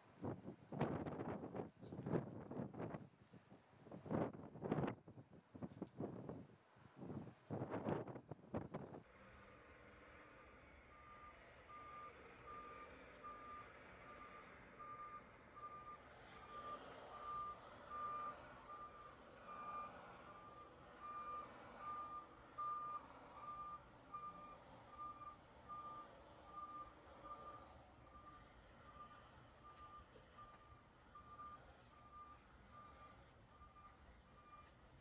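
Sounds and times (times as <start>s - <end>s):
reversing alarm beeping: 10.9s - 34.8s.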